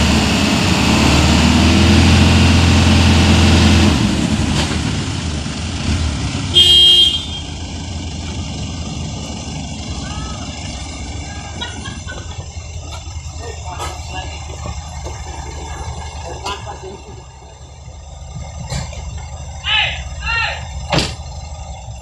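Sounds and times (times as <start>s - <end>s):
diesel engines working hard: 0.0s - 22.0s
horn toot: 6.5s - 7.6s.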